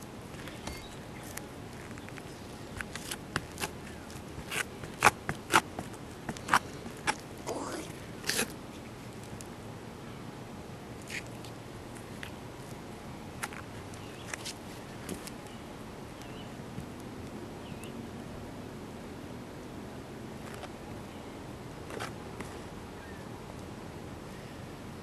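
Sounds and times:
steady low hiss: 0:00.0 - 0:25.0
boot scuffing on roof: 0:00.5 - 0:01.0, 0:02.8 - 0:07.2.

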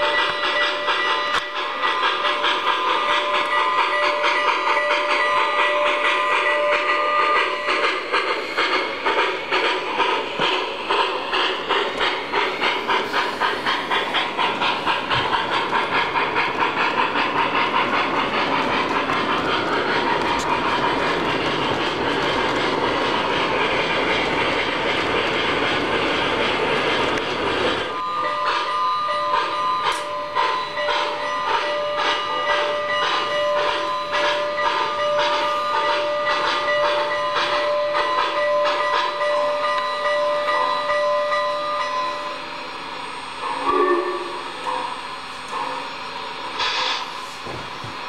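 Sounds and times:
model train wheels clattering: 0:00.0 - 0:28.7, 0:29.3 - 0:41.4
steam whistle: 0:43.1 - 0:45.9.

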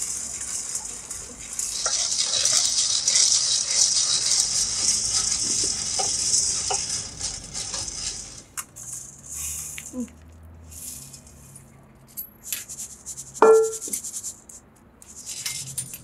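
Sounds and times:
coffee beans rattling in a wok: 0:00.0 - 0:10.0, 0:12.6 - 0:14.4.

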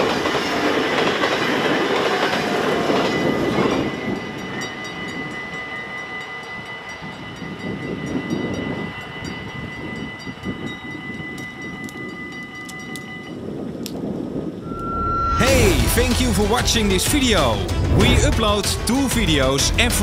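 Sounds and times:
low train rumble: 0:00.0 - 0:20.0
level crossing bells ringing: 0:03.2 - 0:13.5.

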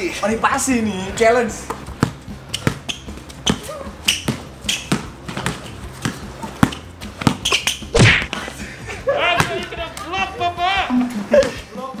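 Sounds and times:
basketball dribbling on hard court: 0:01.7 - 0:07.9.

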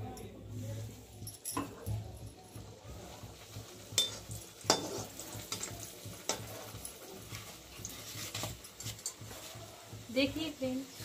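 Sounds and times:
oil sizzling while deep-frying: 0:00.0 - 0:11.0
metal ladle clinking: 0:01.3 - 0:01.9, 0:03.9 - 0:07.0.

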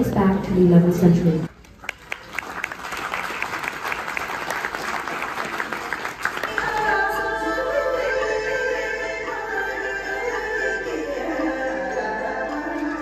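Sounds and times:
audience applauding: 0:01.5 - 0:07.4
music with held notes: 0:06.5 - 0:13.0.

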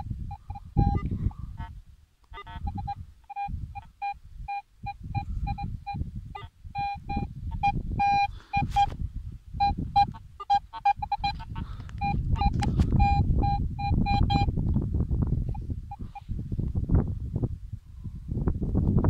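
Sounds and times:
metal detector beeps: 0:00.0 - 0:01.7, 0:02.3 - 0:09.0, 0:09.6 - 0:14.5.

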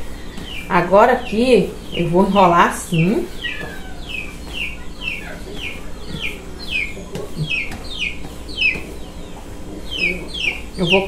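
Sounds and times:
chick peeping: 0:00.0 - 0:11.0.

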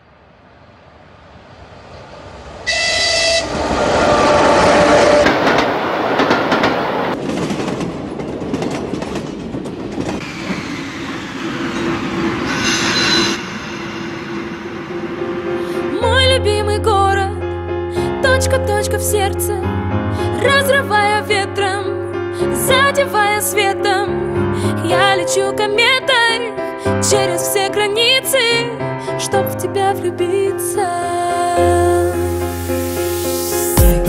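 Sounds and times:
train rumble and wheel clatter: 0:00.0 - 0:16.6
train horn: 0:02.6 - 0:05.6.

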